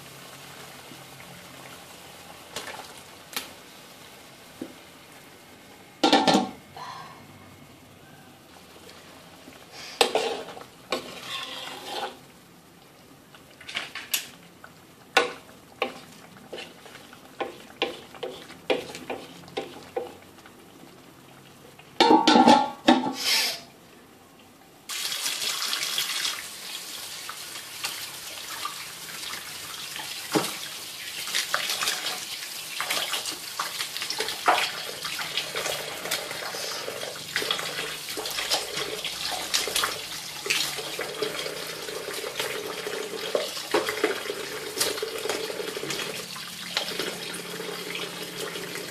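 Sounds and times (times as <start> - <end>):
spoon scraping in a wok: 9.8 - 12.2, 15.8 - 19.8.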